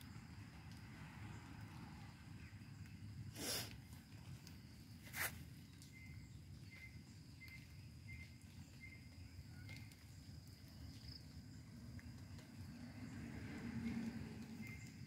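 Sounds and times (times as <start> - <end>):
brief rustle: 5.0 - 5.4
low wind rumble: 10.3 - 15.0.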